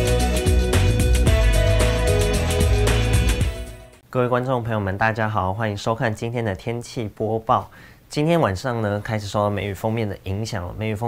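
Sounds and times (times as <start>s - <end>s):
upbeat theme music with beat: 0.0s - 4.0s.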